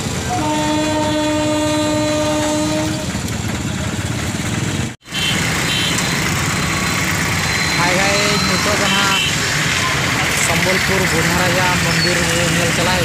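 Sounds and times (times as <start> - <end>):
train rumble: 0.0 - 13.0
train horn: 0.3 - 3.3.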